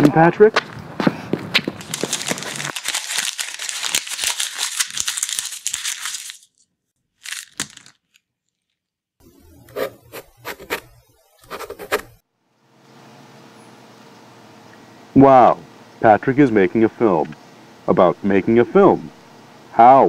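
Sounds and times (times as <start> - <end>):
dense crackling and crumpling: 1.7 - 6.6, 7.2 - 8.8
faint hum: 9.2 - 20.0.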